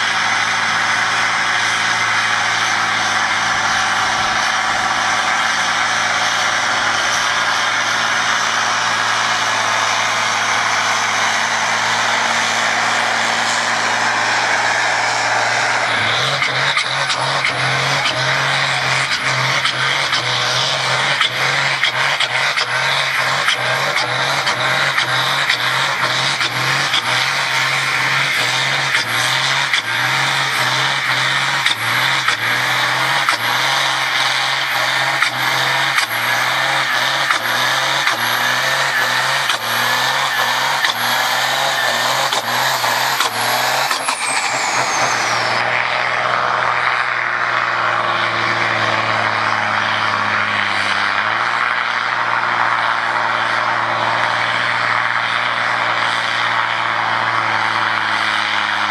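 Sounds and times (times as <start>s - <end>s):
high falling whine: 0.0s - 19.6s, 24.2s - 48.4s
tractor engine pulsing: 0.0s - 58.9s
tractor engine steady note: 0.0s - 58.9s.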